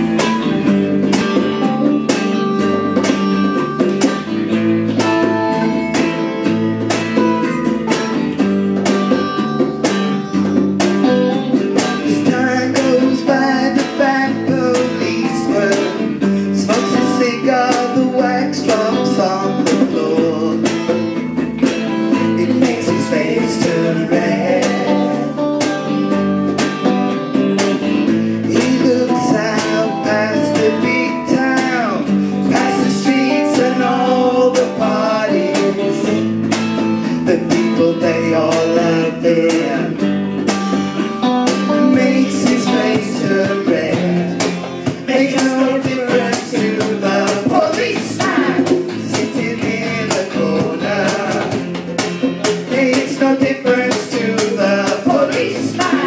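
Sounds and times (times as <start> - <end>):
electric guitar: 0.0 - 56.0
man singing: 11.8 - 21.2, 22.0 - 25.6, 28.0 - 40.2, 41.6 - 56.0
woman singing: 12.1 - 20.7, 22.3 - 25.4, 28.5 - 36.2, 41.7 - 51.6, 52.7 - 56.0.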